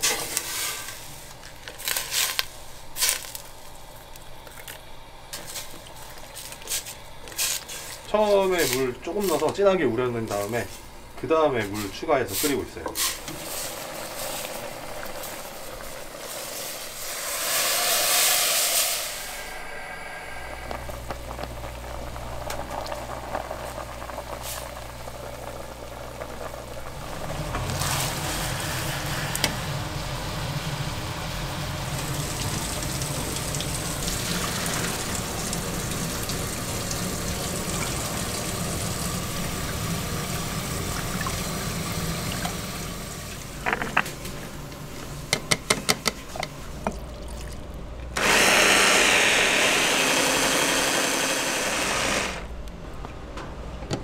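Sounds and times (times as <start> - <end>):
pot of stock hissing: 0.0 - 43.6, 48.2 - 52.6
water pouring: 13.3 - 29.4, 31.5 - 43.5, 46.9 - 47.7
low hum: 19.0 - 24.3.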